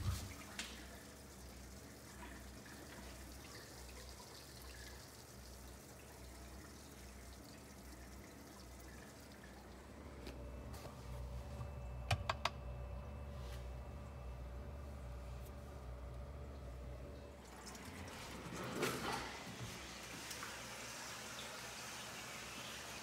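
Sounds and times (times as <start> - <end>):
water trickling and dripping: 0.0 - 10.3, 16.5 - 23.0.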